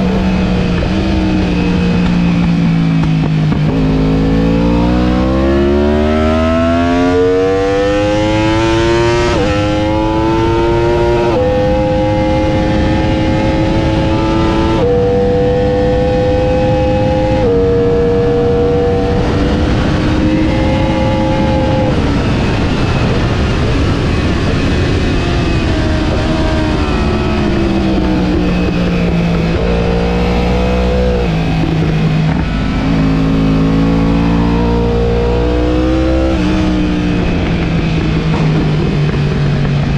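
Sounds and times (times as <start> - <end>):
motorcycle engine accelerating: 0.0 - 39.9
wind on microphone: 0.0 - 39.9.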